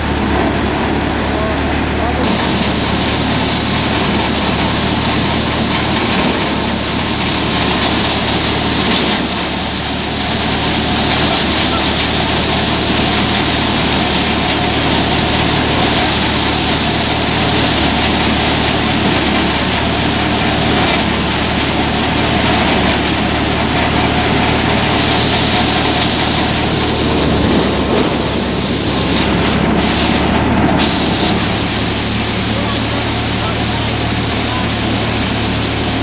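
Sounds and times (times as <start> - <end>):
thresher machine din: 0.0 - 36.0
constant low hum: 23.8 - 32.7.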